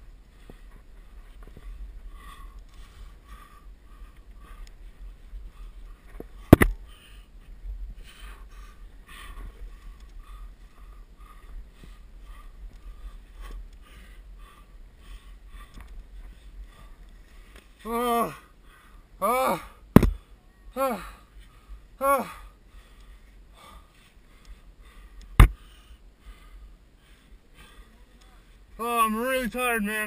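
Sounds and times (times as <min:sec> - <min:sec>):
person breathing hard: 0:00.3 - 0:28.8
sharp knock: 0:20.0 - 0:20.2.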